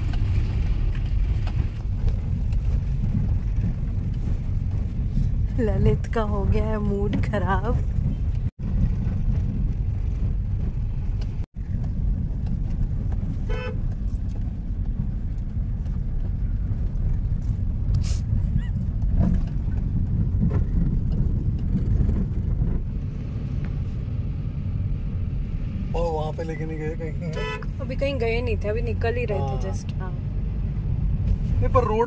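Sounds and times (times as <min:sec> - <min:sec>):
road traffic rumble: 0:00.0 - 0:32.0
car horn toot: 0:13.4 - 0:13.8, 0:27.2 - 0:27.8.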